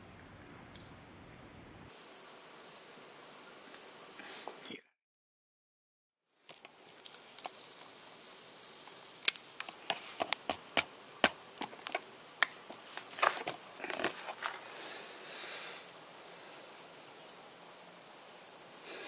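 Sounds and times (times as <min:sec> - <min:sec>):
faint room hiss: 0:01.9 - 0:04.7, 0:06.3 - 0:19.0
sharp clicks and ticks: 0:08.8 - 0:13.1.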